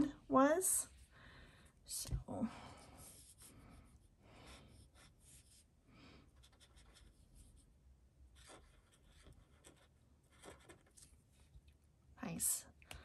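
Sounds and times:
marker scratching on paper: 0:03.0 - 0:03.8, 0:04.5 - 0:05.7, 0:06.4 - 0:07.6, 0:08.4 - 0:11.1.

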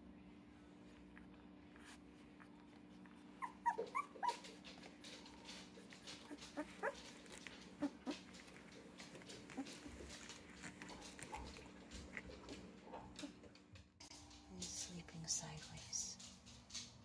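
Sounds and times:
puppy squeaking and whimpering: 0:03.2 - 0:04.8, 0:06.1 - 0:11.6.

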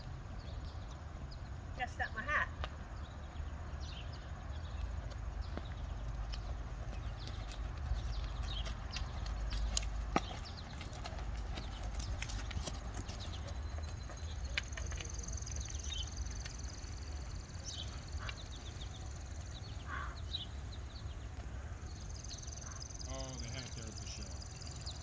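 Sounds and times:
hoofbeats on sand: 0:04.7 - 0:16.9.

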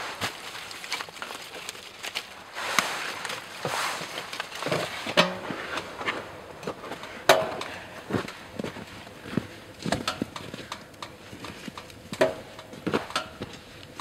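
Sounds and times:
footsteps crunching in snow: 0:00.0 - 0:13.8
sharp clicks and knocks: 0:09.8 - 0:14.0.

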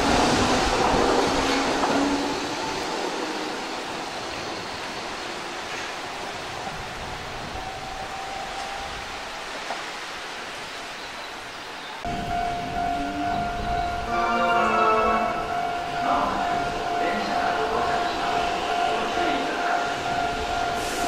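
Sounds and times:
rain hissing: 0:15.0 - 0:21.0.

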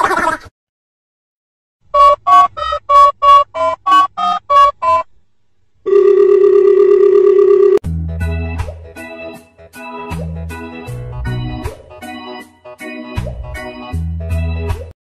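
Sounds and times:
long steady phone tone: 0:05.8 - 0:07.8
telephone keypad beeps: 0:05.9 - 0:07.8.

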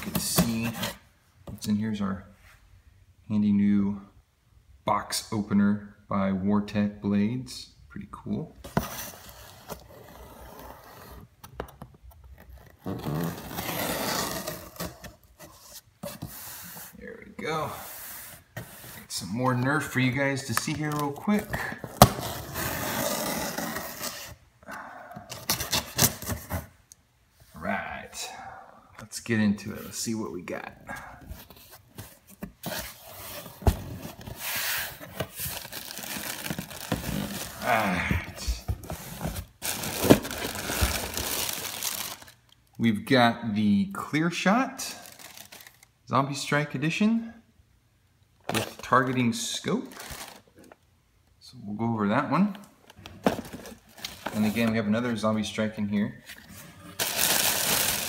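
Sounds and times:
packing rustling and scraping: 0:30.9 - 0:42.4, 0:49.9 - 0:50.8, 0:53.0 - 0:54.9, 0:56.3 - 0:58.0
cardboard box being opened: 0:31.4 - 0:42.3.

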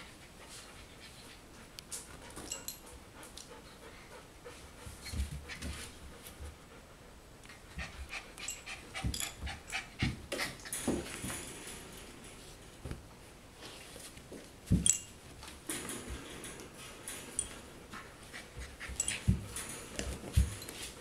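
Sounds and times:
puppies panting and snuffling: 0:00.0 - 0:11.1, 0:16.1 - 0:21.0.

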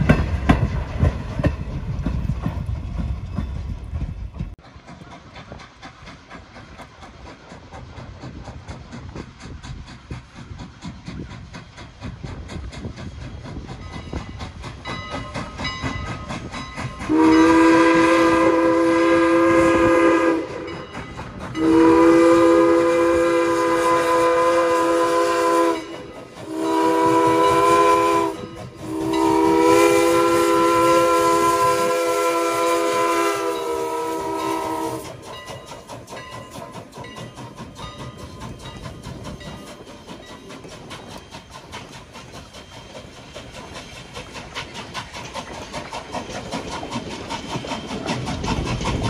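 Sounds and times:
faint train running: 0:00.0 - 0:49.0
steam locomotive whistle blasts: 0:17.0 - 0:20.9, 0:21.6 - 0:35.4.

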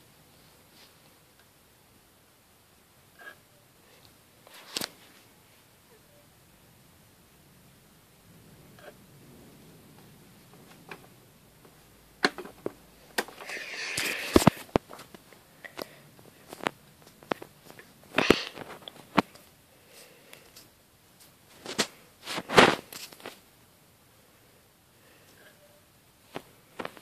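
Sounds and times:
rustling: 0:03.2 - 0:05.7, 0:08.3 - 0:23.5, 0:25.2 - 0:27.0
handling clicks and knocks: 0:10.5 - 0:13.5.

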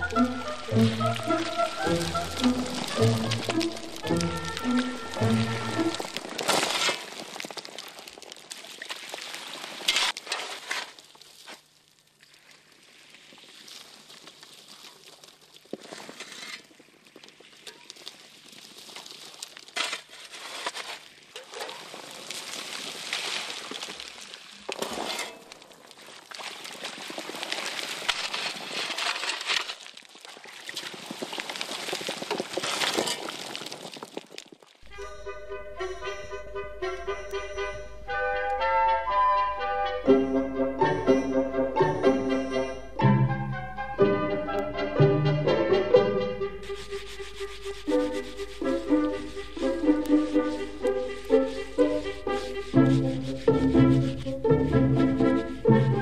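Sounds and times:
stones clinking and rattling: 0:00.1 - 0:11.7, 0:27.0 - 0:34.9
water splashing onto wooden board: 0:00.1 - 0:11.7, 0:21.3 - 0:34.7.

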